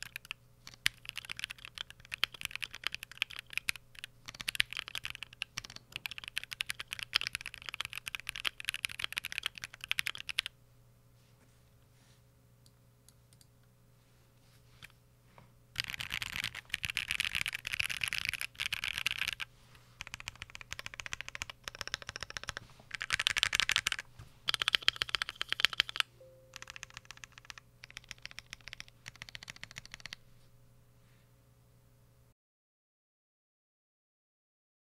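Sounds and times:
mechanical keyboard typing: 0.0s - 10.5s, 15.8s - 30.2s.

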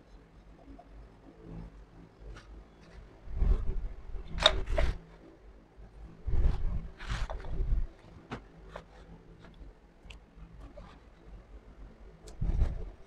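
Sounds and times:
low rumble: 5.8s - 8.0s, 10.4s - 13.0s.

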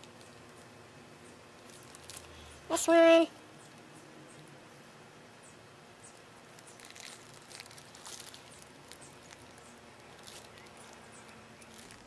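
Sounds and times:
wrapper crinkling and rustling: 0.0s - 0.8s, 1.5s - 2.8s, 6.1s - 12.0s.

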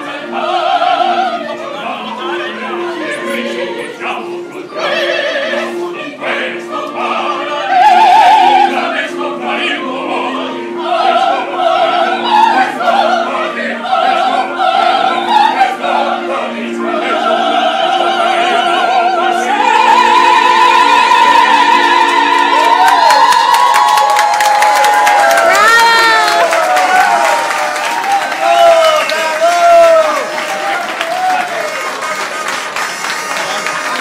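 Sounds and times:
opera singers singing: 0.0s - 28.9s
held accompaniment: 0.0s - 34.0s.

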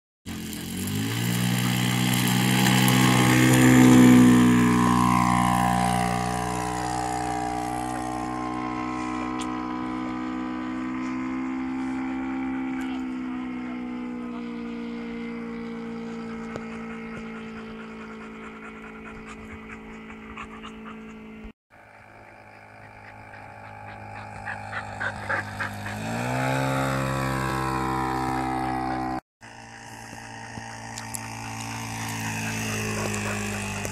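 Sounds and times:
model plane engine and propeller: 0.3s - 33.9s
dog barking: 32.0s - 33.9s.

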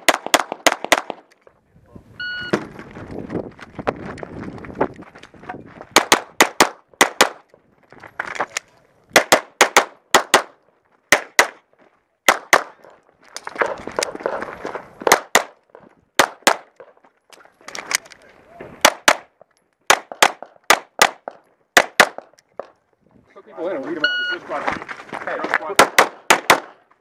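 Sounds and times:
rustling and scuffing: 13.1s - 15.1s, 23.6s - 25.7s
pistol shots close up: 25.8s - 26.8s.

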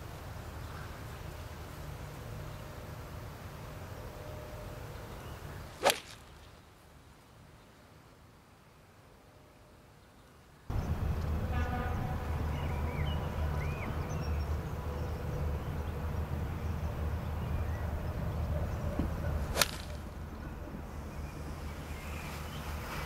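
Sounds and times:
golf iron striking ball: 5.8s - 6.2s, 19.5s - 20.2s.

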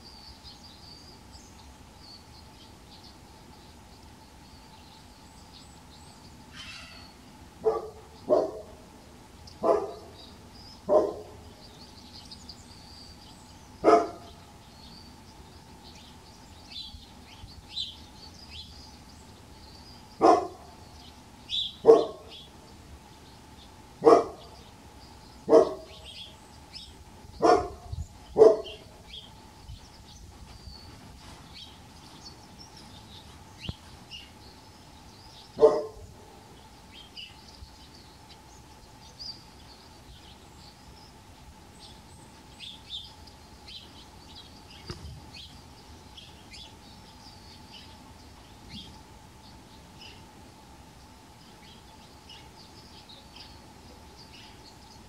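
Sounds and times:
birds chirping faintly: 0.0s - 55.0s
dog barking: 7.6s - 8.8s, 9.6s - 10.2s, 10.9s - 11.4s, 13.8s - 14.3s, 20.2s - 20.7s, 21.8s - 22.3s, 24.0s - 24.4s, 25.5s - 25.9s, 27.4s - 28.8s, 35.6s - 36.0s.

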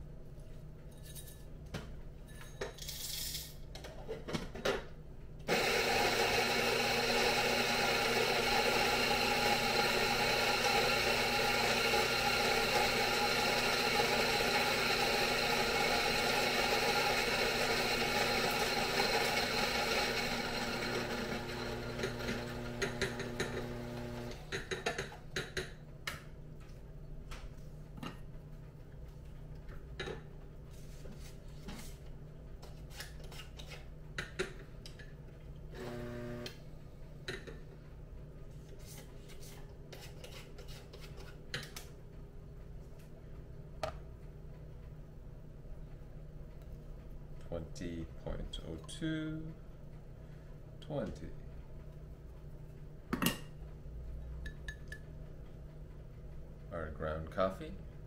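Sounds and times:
coffee grinder motor hum: 5.5s - 24.5s, 35.8s - 36.6s.

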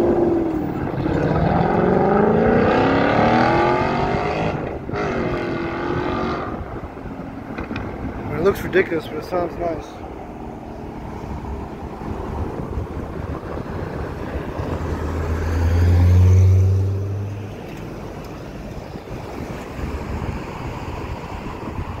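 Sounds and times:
road traffic: 0.0s - 22.0s
car exhaust drone passing: 10.1s - 22.0s.

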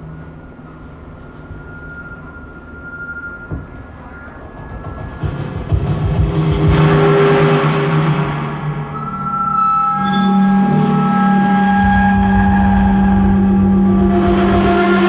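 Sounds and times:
high ringing tones: 0.0s - 5.0s, 8.6s - 13.8s
low drum feedback drone: 0.0s - 15.0s.

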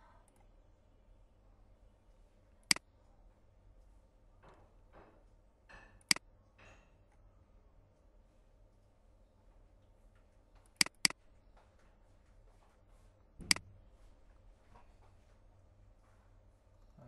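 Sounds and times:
faint low hum: 0.0s - 17.0s
computer mouse clicks: 10.6s - 11.2s.

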